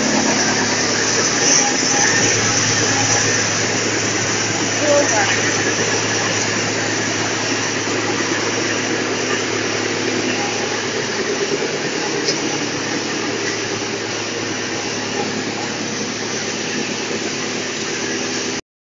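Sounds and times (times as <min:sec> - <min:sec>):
wood chipper and conveyor running: 0:00.0 - 0:18.6.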